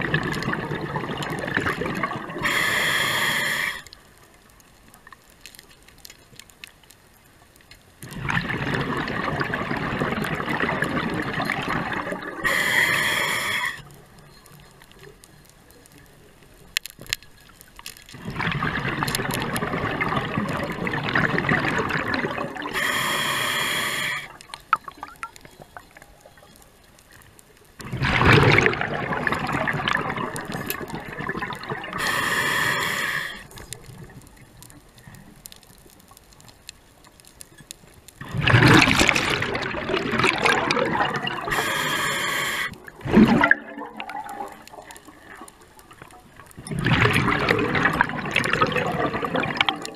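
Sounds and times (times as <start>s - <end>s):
exhaled bubbles gurgling: 0.0s - 3.9s, 8.0s - 14.5s, 18.1s - 26.6s, 27.7s - 35.5s, 38.2s - 49.9s
regulator breathing underwater: 2.4s - 4.0s, 12.4s - 13.9s, 22.6s - 24.4s, 31.9s - 33.6s, 41.0s - 42.9s
short hiss: 2.4s - 4.0s, 12.4s - 13.9s, 22.7s - 24.3s, 32.0s - 33.6s, 41.5s - 42.8s.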